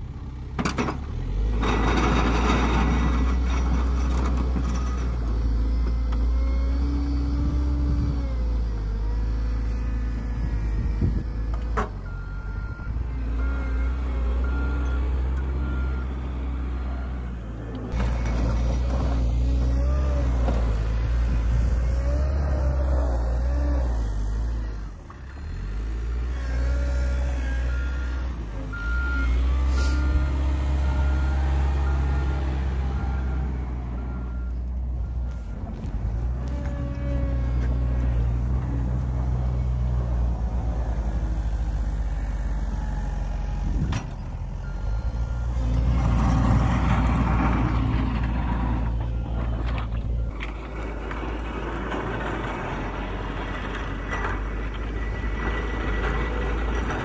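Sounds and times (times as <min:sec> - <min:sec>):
diesel loader engine running: 0:00.0 - 0:57.0
reversing alarm beeping: 0:12.0 - 0:17.4, 0:26.6 - 0:35.9, 0:42.7 - 0:46.4.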